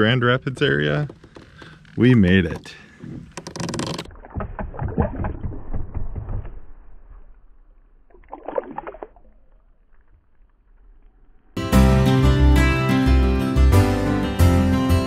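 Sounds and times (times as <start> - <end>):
fish splashing in water: 8.0 - 10.3.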